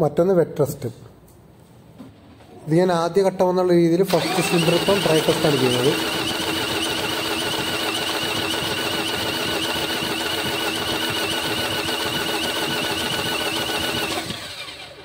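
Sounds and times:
diesel engine cranking on starter: 4.1 - 15.0.

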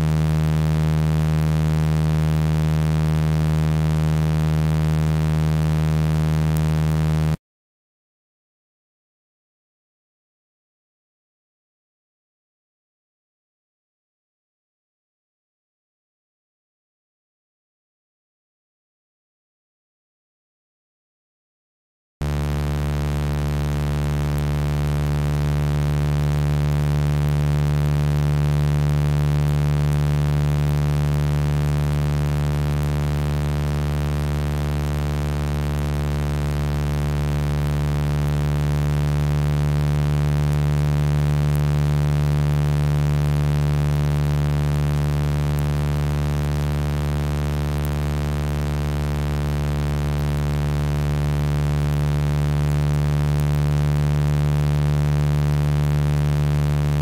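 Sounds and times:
low electronic humming tones: 0.0 - 7.4, 22.2 - 57.0.

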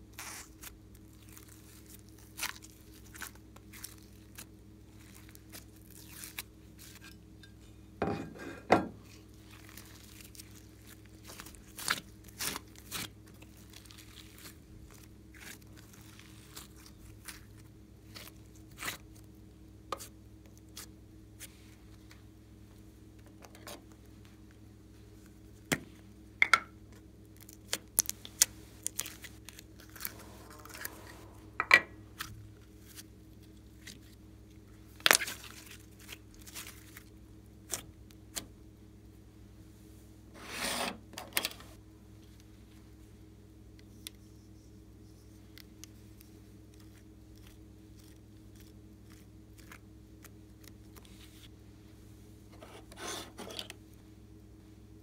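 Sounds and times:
rustling squelch of slime: 0.0 - 7.9, 9.0 - 26.2, 26.9 - 38.7, 41.7 - 54.9
faint steady hum: 0.0 - 55.0.

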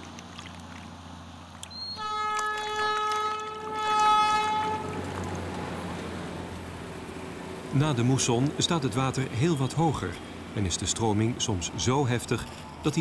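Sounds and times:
diesel train horn blast: 1.9 - 5.3.

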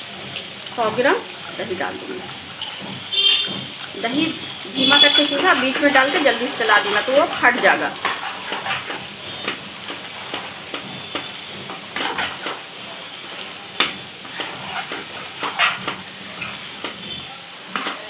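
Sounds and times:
food sizzling: 0.0 - 18.0
metal spoon scraping a pan: 4.2 - 12.7, 13.8 - 18.0.

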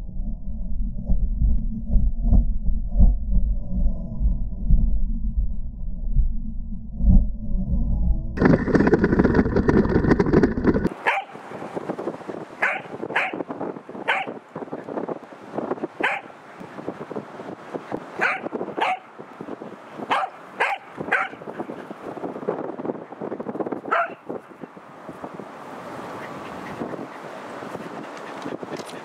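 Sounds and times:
loud rough rumbling noise: 0.0 - 10.9
dog barking sharply: 11.0 - 11.4, 12.6 - 13.4, 14.1 - 14.4, 16.0 - 16.3, 18.2 - 19.1, 20.1 - 21.4, 23.9 - 24.2.

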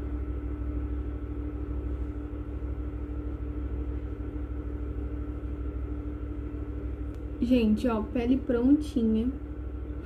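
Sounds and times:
low background hum: 0.0 - 10.0.

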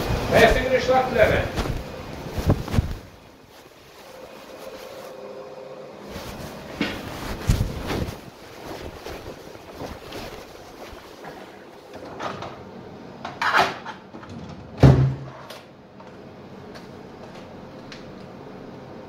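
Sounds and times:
rustling: 0.3 - 5.2, 6.0 - 12.0.

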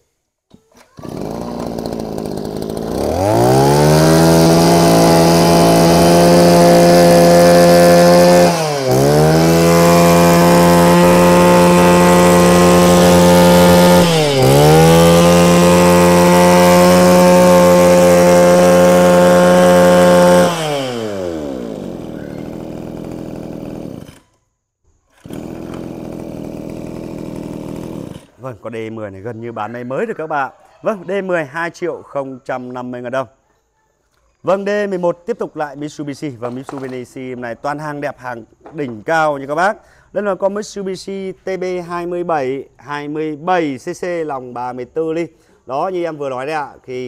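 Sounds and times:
brush cutter engine revving: 0.8 - 24.4, 25.1 - 28.5.

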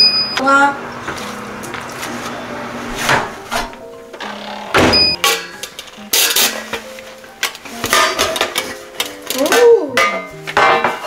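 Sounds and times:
background music: 0.6 - 11.0
metal loaf pan clattering: 7.8 - 11.0.

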